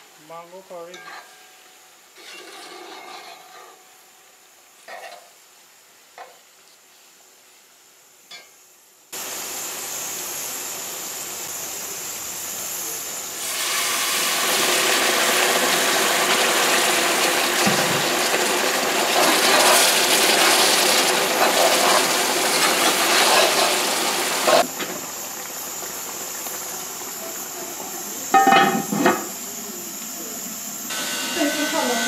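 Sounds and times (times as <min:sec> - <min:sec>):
water sizzling in a hot pot: 0:00.0 - 0:32.0
pot lid clattering: 0:28.3 - 0:29.3.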